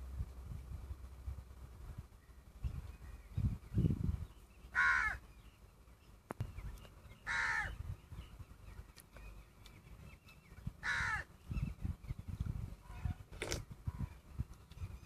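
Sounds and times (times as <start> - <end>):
crow cawing: 4.7 - 5.2, 7.3 - 7.8, 10.8 - 11.3.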